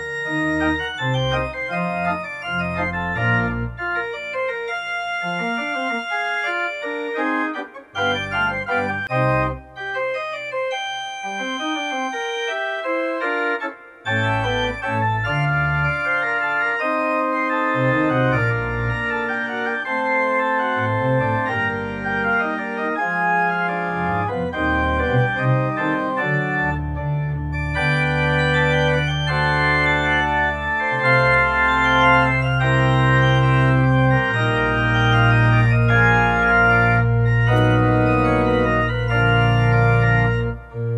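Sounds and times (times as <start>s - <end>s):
organ music: 0.0s - 40.9s.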